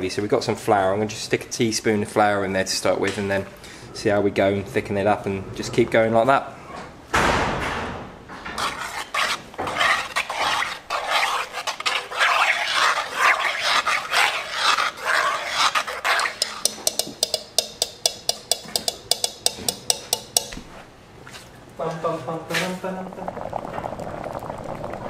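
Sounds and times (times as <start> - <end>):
spoon stirring thick stew: 8.6 - 20.8
spoon clinking against pot: 15.6 - 20.6.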